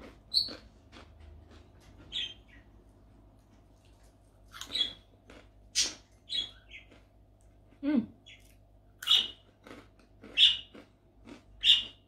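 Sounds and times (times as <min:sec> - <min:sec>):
crunching crispy crackers: 0:03.9 - 0:06.0, 0:09.2 - 0:12.0.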